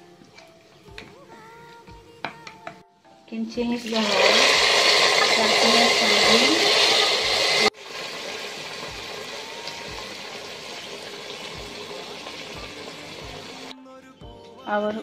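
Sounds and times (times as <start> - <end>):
hot oil sizzling loudly: 3.8 - 13.7.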